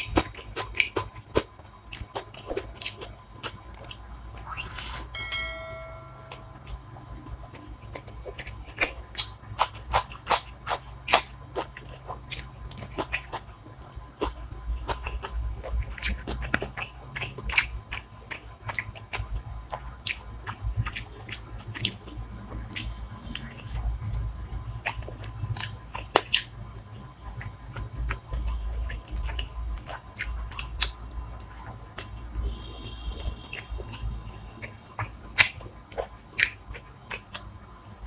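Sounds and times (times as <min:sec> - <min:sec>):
chewing and crunching: 0:00.0 - 0:05.1, 0:06.6 - 0:32.3, 0:33.1 - 0:38.0
low steady hum: 0:00.0 - 0:38.0
brief ringing tone: 0:05.2 - 0:06.7.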